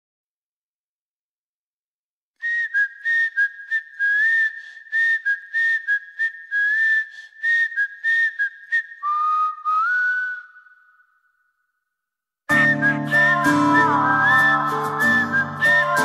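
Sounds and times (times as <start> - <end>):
person whistling a tune: 2.4 - 11.4, 12.5 - 16.0.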